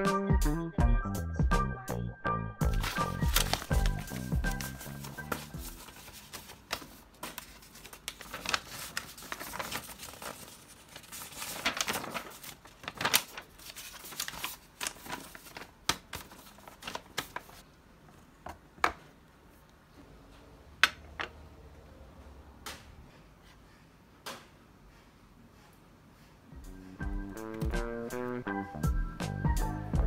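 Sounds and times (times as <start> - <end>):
paper rustling and crinkling: 2.6 - 17.6.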